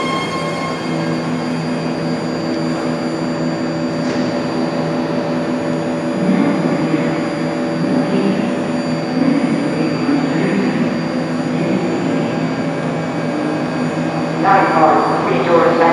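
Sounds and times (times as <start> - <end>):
faint high whine: 0.0 - 15.9
train electrical hum: 0.0 - 15.9.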